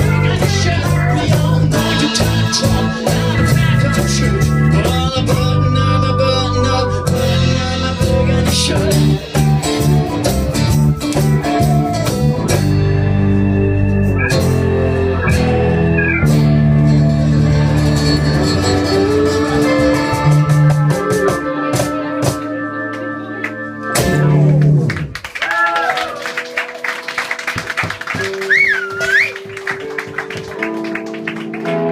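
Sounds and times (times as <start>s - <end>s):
man singing into microphone: 0.0s - 9.4s
rock band playing: 0.0s - 31.9s.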